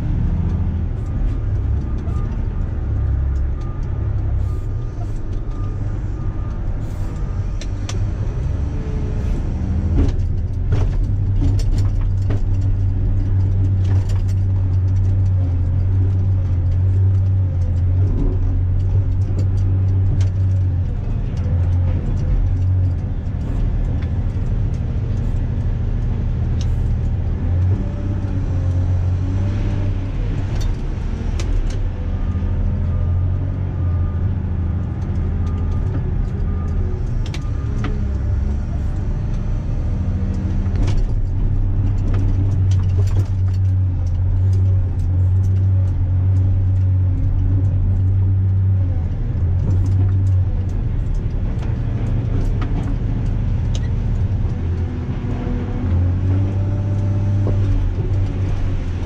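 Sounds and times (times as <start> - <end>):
diesel engine drone: 0.0 - 59.0
knocks and rattles: 9.8 - 28.2.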